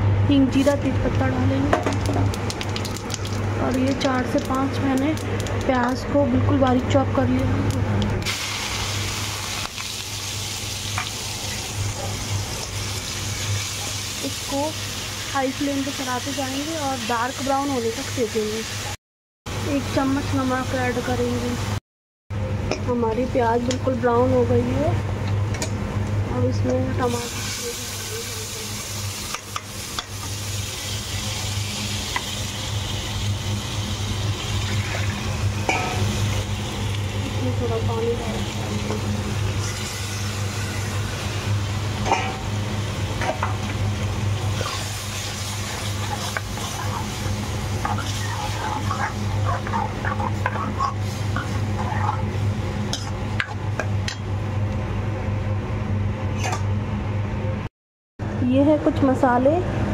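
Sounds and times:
paste sizzling in hot oil: 8.2 - 19.0, 27.0 - 52.4
steady low hum: 19.5 - 59.9
metal spoon scraping pan: 47.8 - 52.3.

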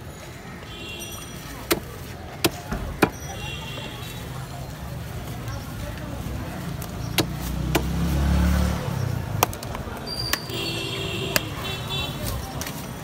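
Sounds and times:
vehicle engine passing: 4.9 - 9.9.

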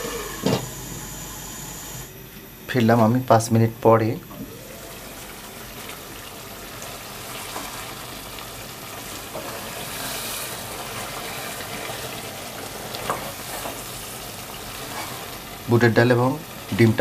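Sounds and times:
curry sizzling and bubbling: 4.4 - 17.0
spatula scraping pot: 9.2 - 14.1, 14.7 - 15.4.

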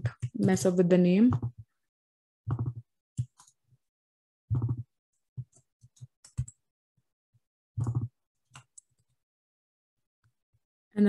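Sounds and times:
computer keyboard typing: 2.5 - 3.5, 5.4 - 6.6, 7.8 - 9.0.

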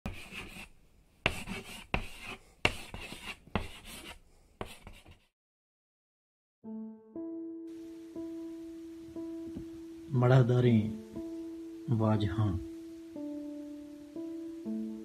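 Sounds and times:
marker writing on paper: 0.1 - 5.3.

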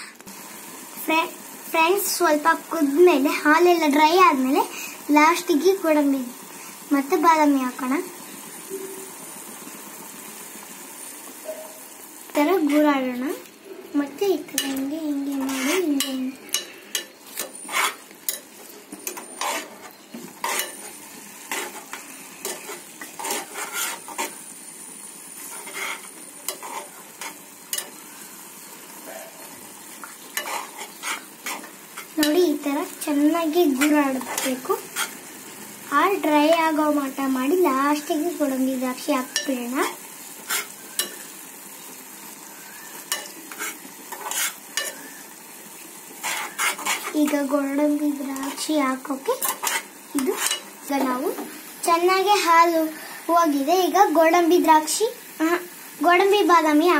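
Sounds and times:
low sizzle: 0.0 - 56.9
spoon scraping metal pot: 14.6 - 20.9, 21.5 - 24.4, 25.4 - 28.0, 30.4 - 32.4, 39.3 - 41.2, 42.8 - 45.2, 46.2 - 47.4, 49.4 - 50.7.

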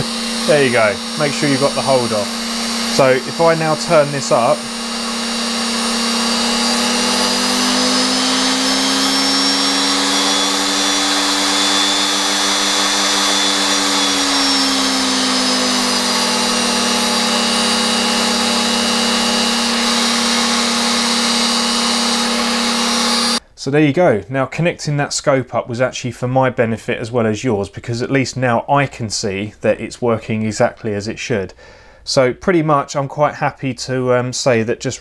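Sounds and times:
trimmer motor whining: 0.0 - 23.4.

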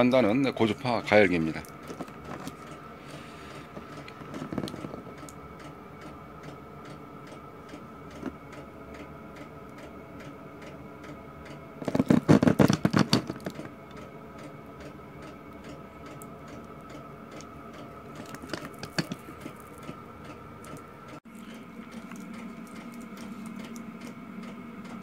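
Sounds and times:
knocks and rattles of handled parts: 1.8 - 2.7, 11.8 - 13.7, 18.2 - 20.8.

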